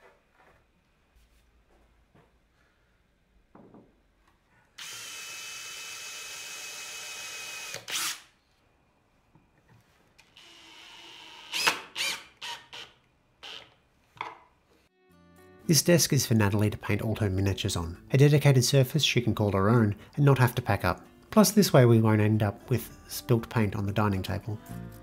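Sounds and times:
cordless drill boring wood: 0:04.8 - 0:08.3, 0:10.4 - 0:13.8
drill driving a screw: 0:04.8 - 0:08.3, 0:10.4 - 0:13.8.

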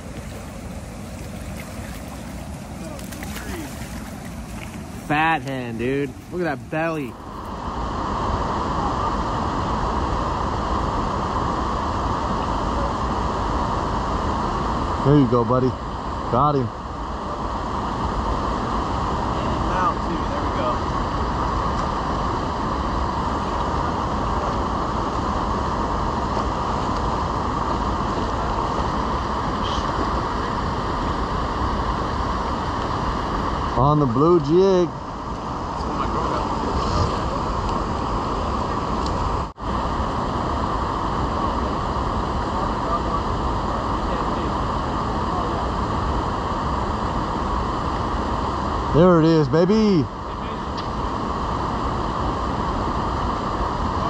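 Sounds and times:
river water rushing over weir: 0:00.0 - 0:10.1.

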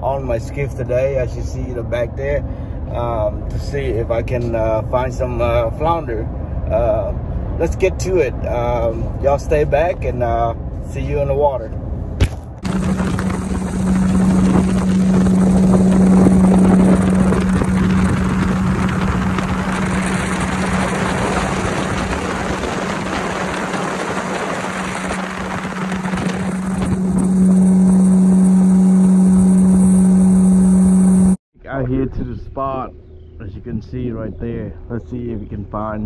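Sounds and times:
wind: 0:00.0 - 0:36.0
water rushing past hull: 0:12.6 - 0:31.3
outboard motor droning: 0:12.6 - 0:31.4.

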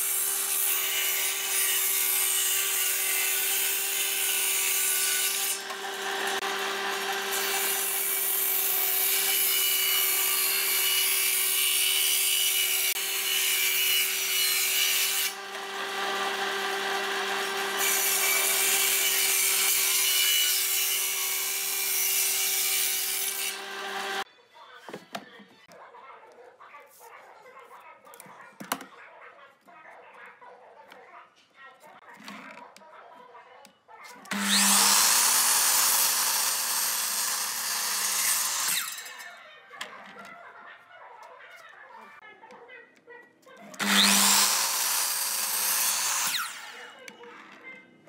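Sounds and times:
table saw cutting wood: 0:00.0 - 0:24.2, 0:34.3 - 0:39.3, 0:43.8 - 0:46.9.

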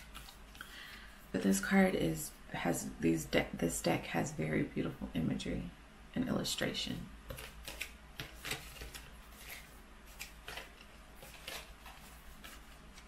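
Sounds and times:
cards scraping and rustling: 0:00.0 - 0:01.0, 0:07.3 - 0:13.0.

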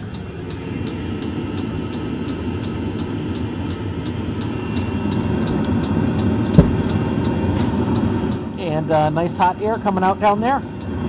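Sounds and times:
fuel pump ticking: 0:00.0 - 0:11.0
heater combustion rumble: 0:00.0 - 0:11.0.

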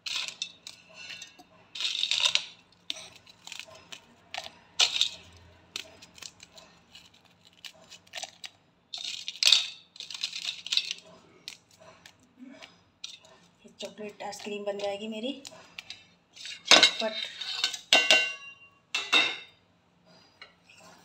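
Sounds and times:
pieces dropping into steel jar: 0:00.0 - 0:03.6, 0:04.8 - 0:05.3, 0:08.9 - 0:11.0
biscuits snapping: 0:00.0 - 0:13.3.

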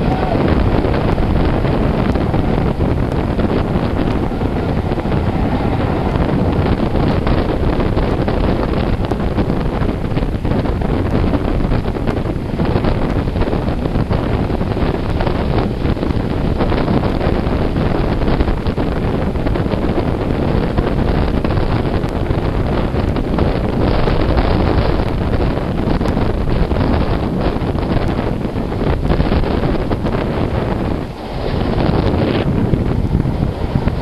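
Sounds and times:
train running noise: 0:00.0 - 0:34.0
wind buffeting microphone: 0:00.0 - 0:34.0.

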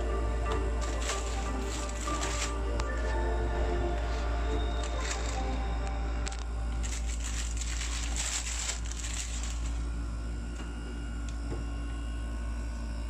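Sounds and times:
plastic bag crinkling: 0:00.8 - 0:03.2, 0:04.0 - 0:10.0.

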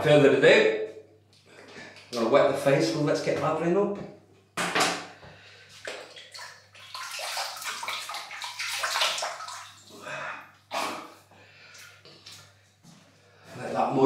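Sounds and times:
water splashing at a basin: 0:05.8 - 0:11.2.

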